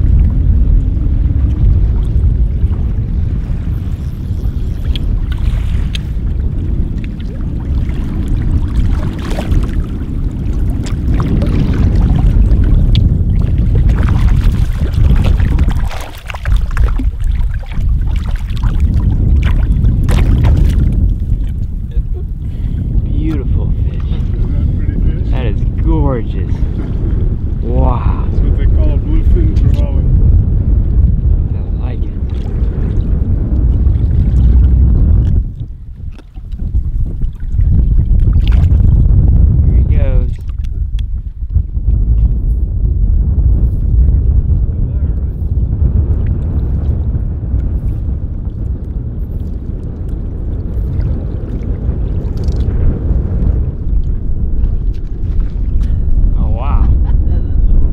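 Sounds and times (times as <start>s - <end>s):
wind rumble on microphone: 0.0s - 57.9s
water sloshing around wading legs: 7.0s - 21.6s.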